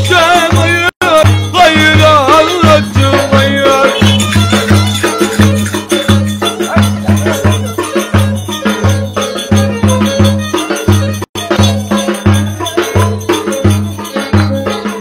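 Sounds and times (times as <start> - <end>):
rattling percussion: 0.0 - 15.0
violin melody: 3.9 - 6.6.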